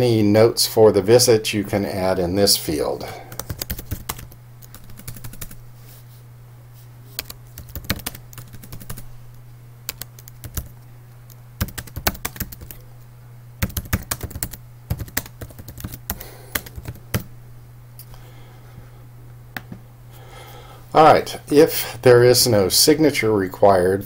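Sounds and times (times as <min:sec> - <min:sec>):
steady low hum: 0:00.0 - 0:24.0
keyboard typing: 0:03.3 - 0:05.6, 0:07.2 - 0:09.1, 0:09.9 - 0:12.8, 0:13.6 - 0:17.3.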